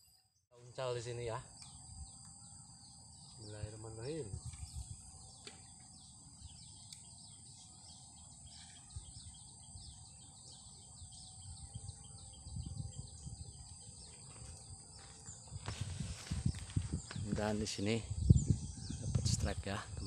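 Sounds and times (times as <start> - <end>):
bird chirping: 0.0 - 20.0
high insect hum: 0.0 - 20.0.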